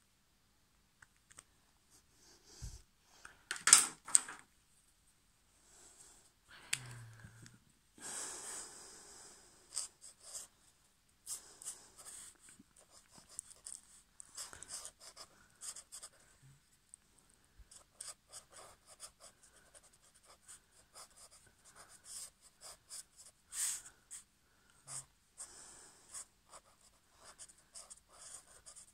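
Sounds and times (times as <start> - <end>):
marker pen scratching paper: 11.3 - 16.2, 17.7 - 24.2, 26.1 - 28.9.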